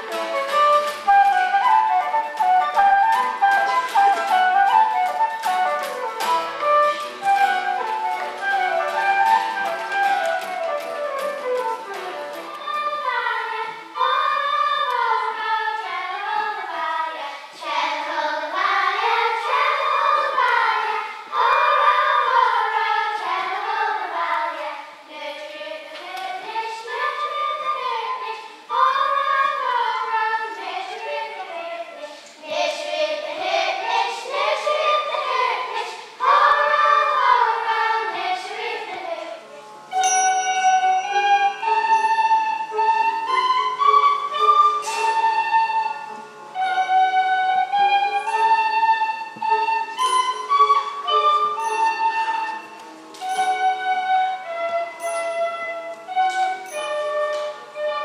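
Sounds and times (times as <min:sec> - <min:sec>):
children's choir singing: 0:00.0 - 0:58.0
tin whistles holding notes: 0:39.9 - 0:58.0.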